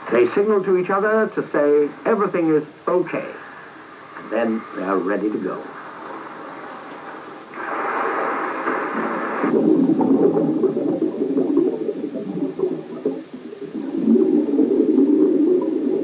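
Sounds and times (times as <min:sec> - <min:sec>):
hiss: 0:03.1 - 0:06.7, 0:07.5 - 0:09.6
underwater bubbling of exhaled air: 0:04.0 - 0:16.0.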